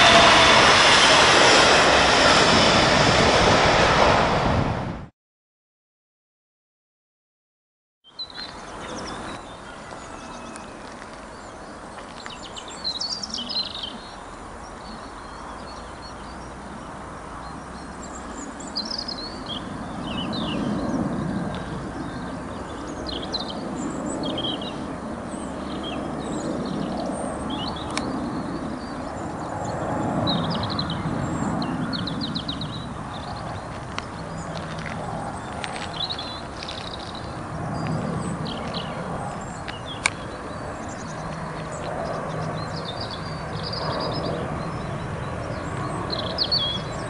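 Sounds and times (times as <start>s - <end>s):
jet aircraft rumbling overhead: 0.0s - 5.1s, 8.4s - 47.0s
small birds chirping: 8.1s - 47.0s.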